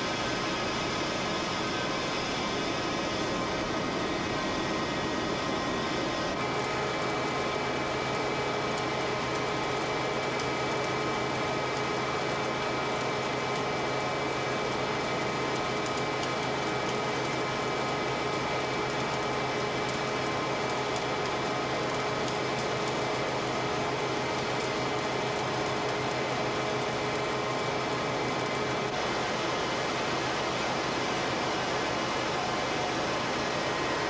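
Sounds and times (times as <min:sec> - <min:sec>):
boiler furnace roar: 0:00.0 - 0:34.0.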